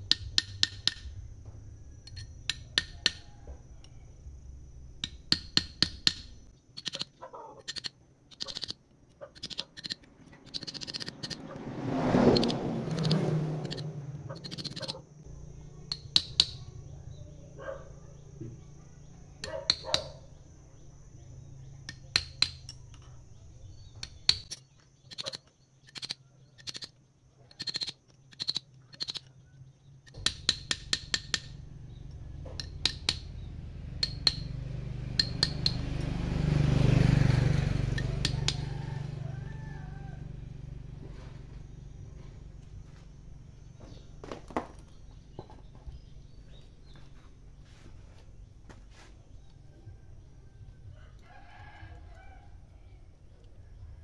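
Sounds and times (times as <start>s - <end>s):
low hum: 0.0s - 6.6s
metal parts clinking: 5.9s - 11.4s.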